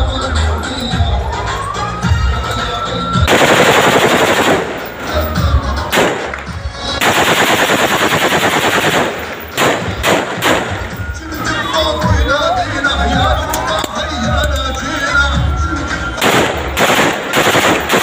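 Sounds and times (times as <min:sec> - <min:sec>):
music: 0:00.0 - 0:18.0
single gunshots: 0:03.3 - 0:04.9, 0:05.9 - 0:10.9, 0:16.2 - 0:18.0
automatic rifle fire: 0:03.3 - 0:05.0, 0:05.9 - 0:06.4, 0:07.0 - 0:10.8, 0:16.2 - 0:18.0.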